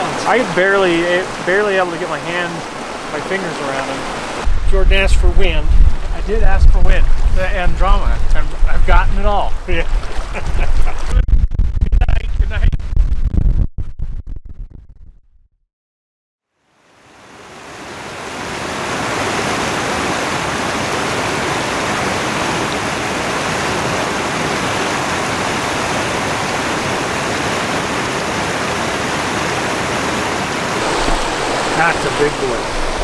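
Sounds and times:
running water: 0.0s - 10.4s, 17.7s - 33.0s.

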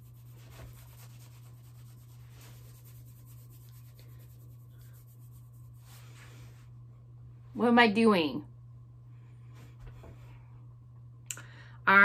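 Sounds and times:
hand rubbing on shirt sleeve: 0.0s - 6.8s
steady low hum: 0.0s - 12.0s.

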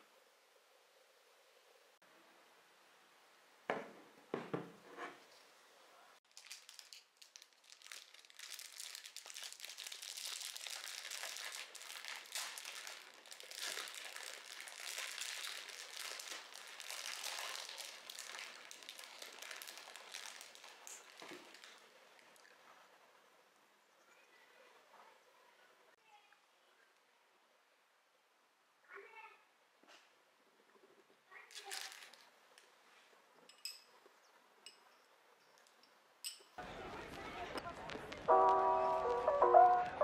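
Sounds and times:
wrapping material crinkling: 6.2s - 22.5s, 31.4s - 32.7s.

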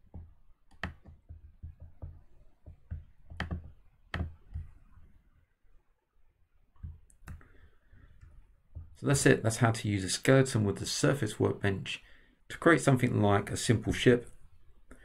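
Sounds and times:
computer mouse clicking: 0.7s - 2.0s, 6.8s - 7.5s.

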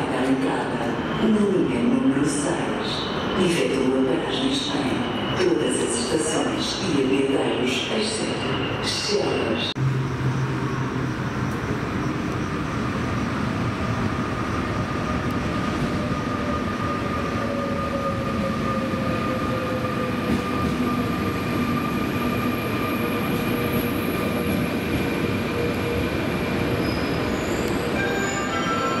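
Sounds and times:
train wheels rumbling on rail: 9.8s - 29.0s.

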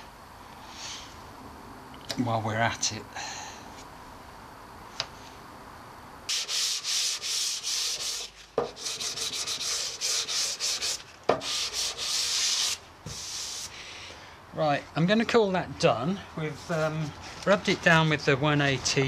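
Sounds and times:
sanding block scratching filler: 6.3s - 13.8s.

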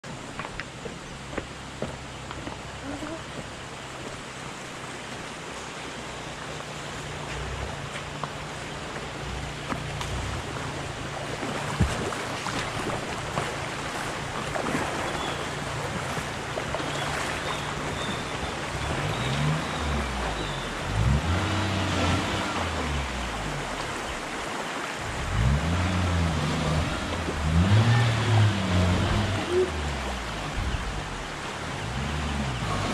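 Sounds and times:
river water flowing: 0.0s - 32.9s
van engine revving: 18.7s - 23.7s, 25.1s - 32.9s.

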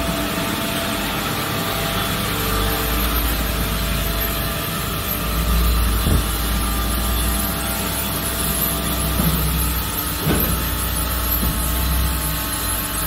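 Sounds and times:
industrial machinery humming: 0.0s - 13.0s.

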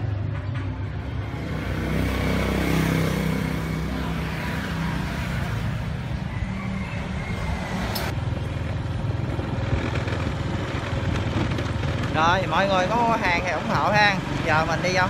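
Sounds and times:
motorbike engine running: 8.1s - 15.0s.

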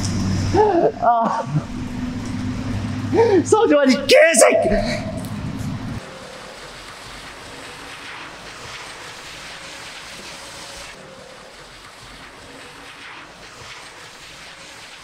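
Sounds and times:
rushing outdoor ambience: 0.0s - 15.0s.

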